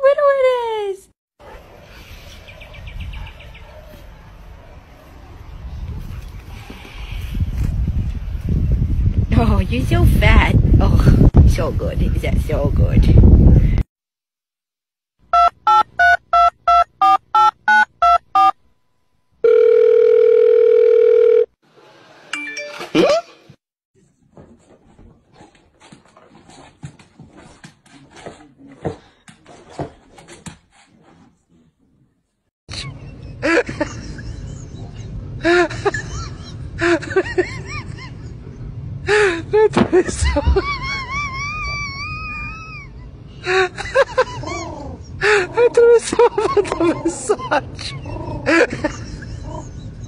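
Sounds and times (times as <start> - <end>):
phone ringing tone: 15.3 - 18.6, 19.4 - 21.5
phone keypad beeps: 15.4 - 18.5.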